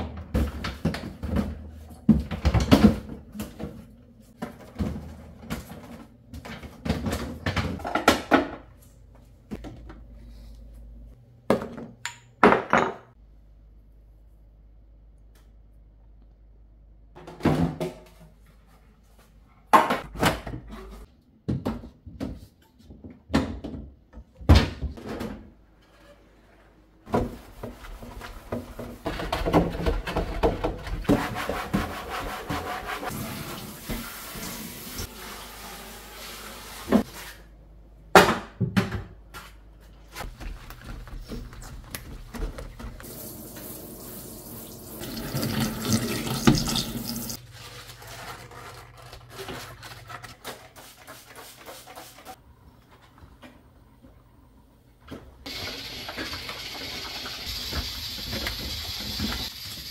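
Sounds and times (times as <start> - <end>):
kitchen tap running: 33.1 - 36.9, 42.6 - 47.4, 55.5 - 59.9.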